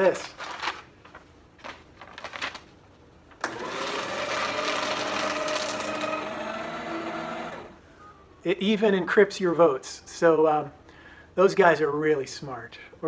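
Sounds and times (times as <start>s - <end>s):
paper rustling: 0.0s - 3.4s
paper shredder motor humming: 3.4s - 7.8s.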